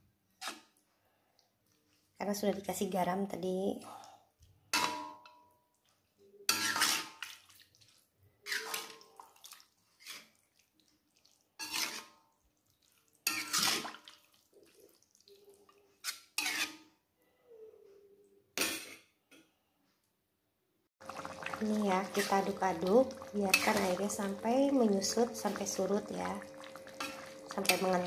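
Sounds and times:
spatula scraping against a wok: 0:06.4 - 0:07.5, 0:08.4 - 0:09.1, 0:09.9 - 0:10.4, 0:11.6 - 0:12.2, 0:13.2 - 0:14.2, 0:16.0 - 0:17.0.

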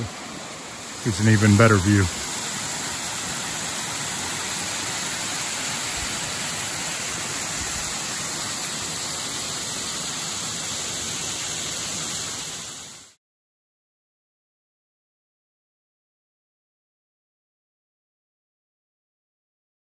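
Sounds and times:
waterfall rushing: 0:00.0 - 0:13.1.

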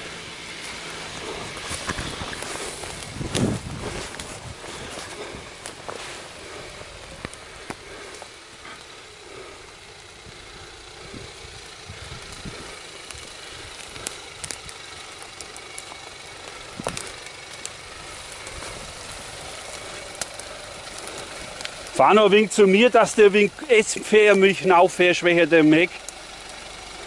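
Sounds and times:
diesel engine at low revs: 0:00.0 - 0:27.0.

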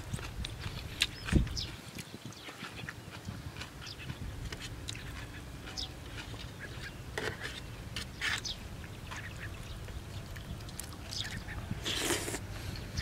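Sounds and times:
wind rumble on microphone: 0:00.0 - 0:05.0, 0:08.2 - 0:13.0
chewing: 0:00.0 - 0:12.5.

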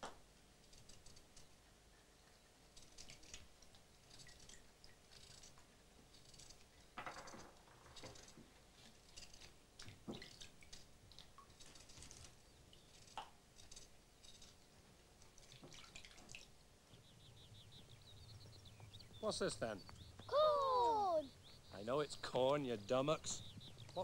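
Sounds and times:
bird trilling: 0:18.9 - 0:24.0.

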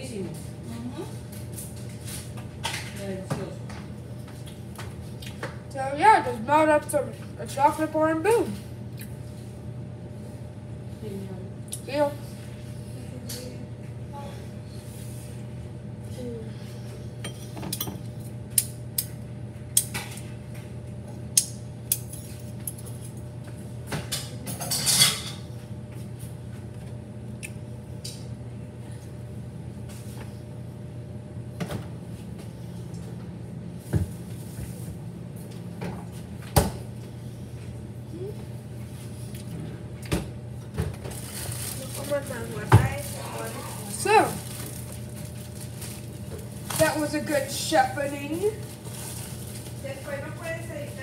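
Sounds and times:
steady low hum: 0:00.0 - 0:51.0
dishes and utensils clinking: 0:24.0 - 0:25.5.

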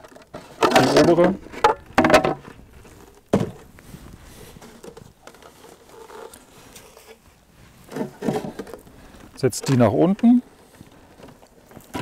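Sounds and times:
wooden box knocking and scraping: 0:00.1 - 0:03.7, 0:07.9 - 0:08.8.

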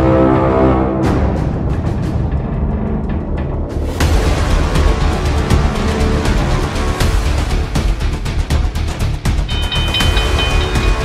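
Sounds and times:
soundtrack music heavy bass: 0:00.0 - 0:11.0
sharp percussive hits: 0:09.5 - 0:11.0.

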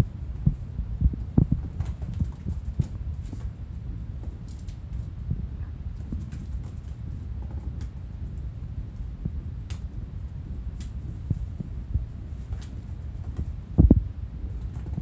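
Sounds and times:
low rumble: 0:00.0 - 0:15.0
kitten paws pattering on mats: 0:00.4 - 0:08.4, 0:10.8 - 0:14.0.

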